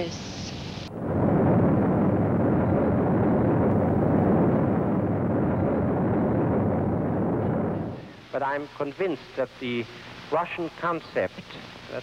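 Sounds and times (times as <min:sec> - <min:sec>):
rocket engine rumble: 0:00.0 - 0:08.6.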